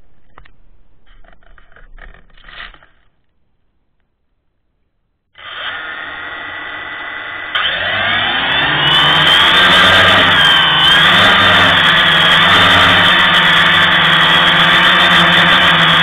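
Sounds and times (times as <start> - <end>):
drone propellers whining: 5.4 - 16.0.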